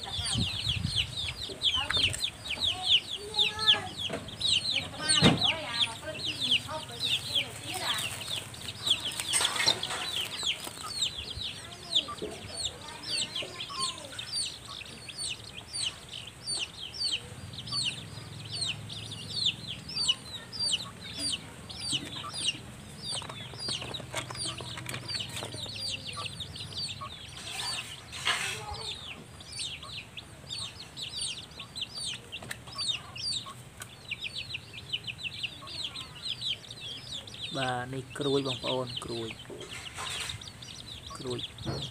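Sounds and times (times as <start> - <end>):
quail chirping: 0.0 - 41.9
rustle: 6.2 - 12.1, 27.1 - 29.4, 39.6 - 41.7.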